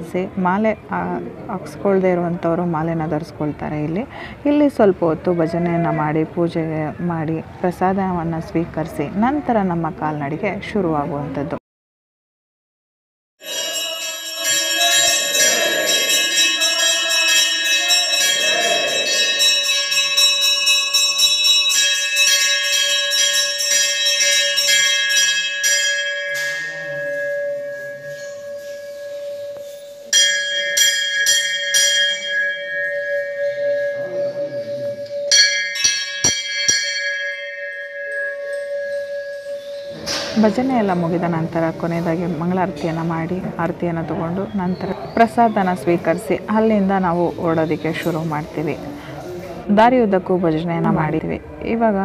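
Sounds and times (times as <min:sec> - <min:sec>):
brass bells clanging: 0:13.4 - 0:44.5, 0:45.3 - 0:48.9.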